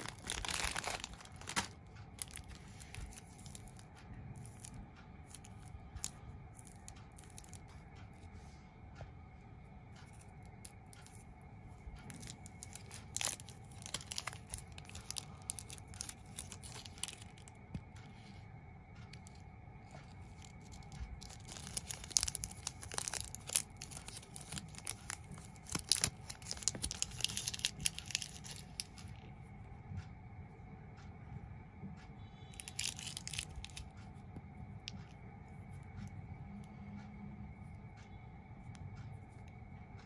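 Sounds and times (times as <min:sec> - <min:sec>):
plastic wrapper crinkling: 0:00.0 - 0:03.8, 0:05.3 - 0:07.6, 0:12.0 - 0:17.6, 0:20.2 - 0:29.2, 0:32.5 - 0:33.9.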